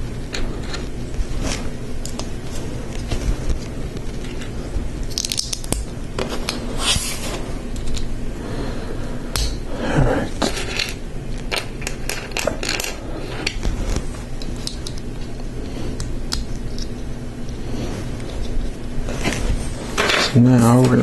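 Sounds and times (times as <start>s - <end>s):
plastic pieces clicking together: 5.1s - 5.9s.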